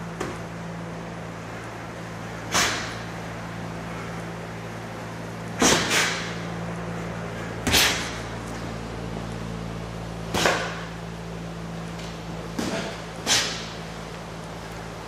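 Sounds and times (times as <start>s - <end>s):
steady low hum: 0.0s - 15.0s
boxing glove punches: 5.6s - 6.3s, 7.6s - 8.3s, 10.3s - 10.9s, 12.5s - 13.8s.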